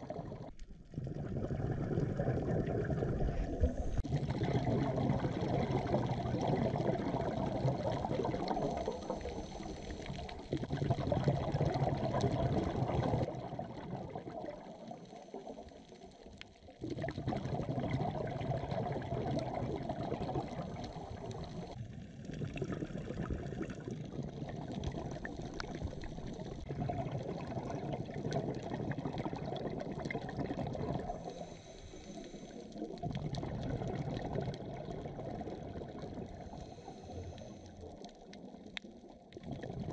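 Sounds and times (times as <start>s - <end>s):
diver breathing underwater: 0.0s - 13.3s, 17.2s - 21.8s, 30.6s - 34.6s, 35.9s - 38.0s
exhaled bubbles rushing: 0.0s - 39.9s.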